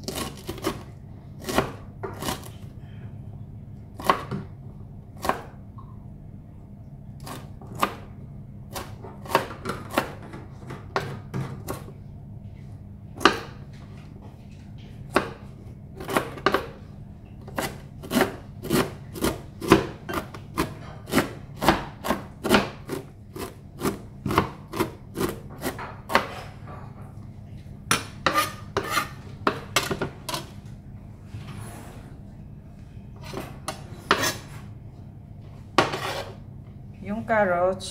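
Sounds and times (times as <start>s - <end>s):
knife chopping on cutting board: 1.4s - 2.5s, 4.0s - 4.5s, 5.2s - 5.6s, 7.2s - 8.1s, 8.7s - 11.9s, 15.1s - 16.8s, 17.5s - 26.5s, 27.9s - 30.4s, 33.2s - 34.4s, 35.8s - 36.4s.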